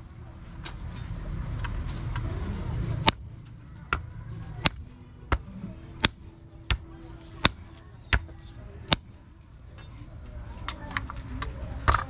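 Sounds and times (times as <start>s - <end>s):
hammer striking steel rod: 3.0s - 9.2s.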